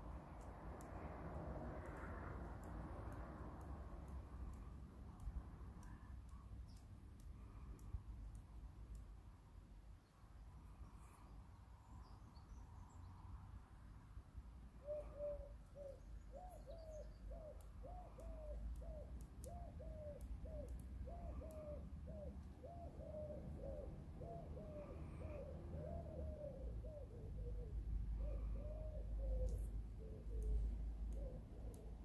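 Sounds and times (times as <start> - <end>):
pigeon cooing: 14.8 - 30.6.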